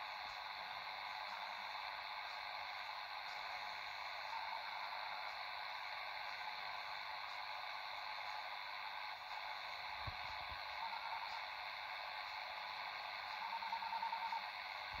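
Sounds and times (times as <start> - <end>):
radio static hiss: 0.0 - 15.0
faint pulsing tone: 9.3 - 15.0.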